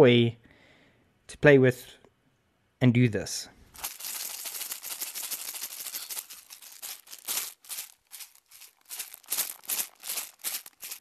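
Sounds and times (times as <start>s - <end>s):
cardboard tube shaker rattling: 3.8s - 11.0s.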